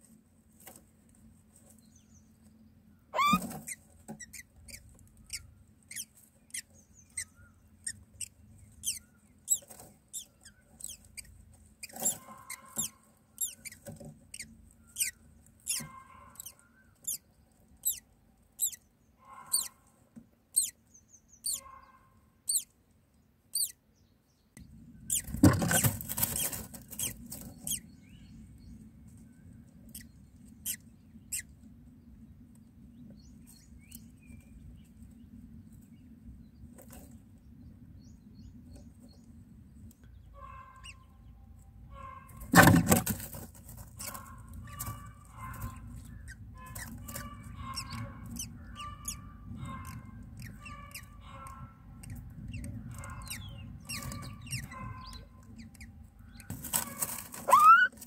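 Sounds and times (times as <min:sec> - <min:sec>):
nestlings begging squeaks: 0:03.2 - 0:19.8, 0:20.5 - 0:20.8, 0:21.4 - 0:21.8, 0:22.4 - 0:22.7, 0:23.5 - 0:23.8, 0:25.0 - 0:28.0, 0:29.8 - 0:31.5, 0:40.4 - 0:41.1, 0:42.0 - 0:58.0.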